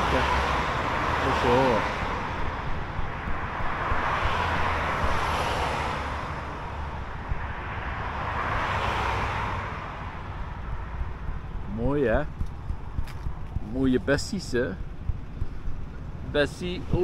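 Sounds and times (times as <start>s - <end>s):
tyre hiss of passing vehicles: 0.0s - 11.2s
low traffic rumble: 0.0s - 17.0s.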